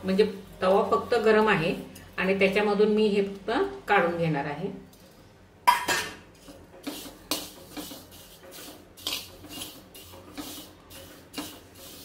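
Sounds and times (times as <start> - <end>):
spoon scraping seeds on griddle: 6.3 - 12.0.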